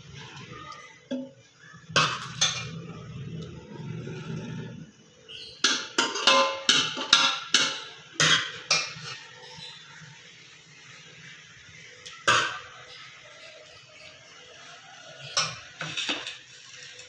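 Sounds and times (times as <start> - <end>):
handling rumble: 1.8 - 5.1.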